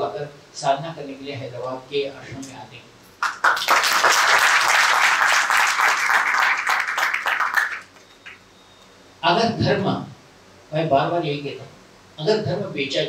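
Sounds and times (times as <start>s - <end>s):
audience applauding: 3.2s - 8.4s.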